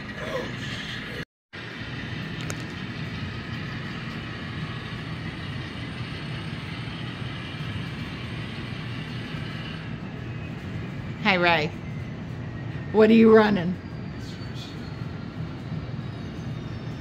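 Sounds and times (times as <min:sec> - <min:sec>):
motor hum: 0:01.7 - 0:11.1.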